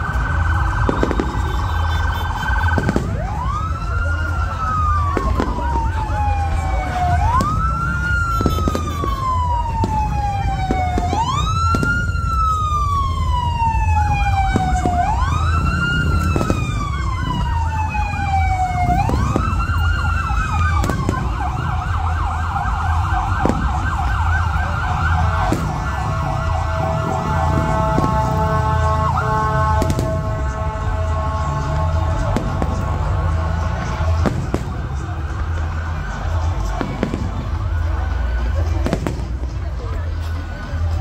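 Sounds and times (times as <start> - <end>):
siren wailing and yelping: 0.0 - 31.0
sharp firework bangs: 0.8 - 3.2, 29.6 - 30.5, 33.7 - 35.0.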